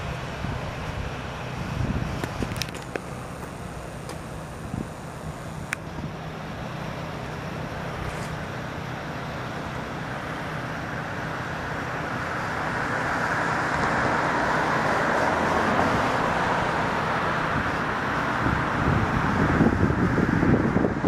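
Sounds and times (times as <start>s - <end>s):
steady low hum: 0.0s - 14.9s
car tyre and engine noise: 0.0s - 21.0s.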